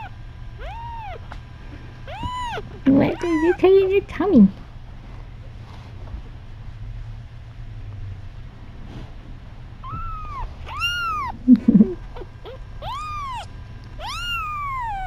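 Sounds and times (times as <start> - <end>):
kitten meowing: 0.0 - 1.2, 2.1 - 3.6, 9.8 - 11.4, 12.1 - 15.0.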